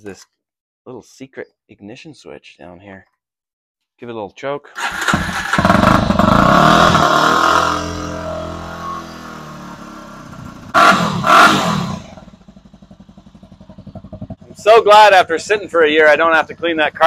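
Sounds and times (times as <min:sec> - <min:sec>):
loud engine bursts: 0:04.8 - 0:12.4
motorcycle engine starting and idling: 0:04.8 - 0:17.0.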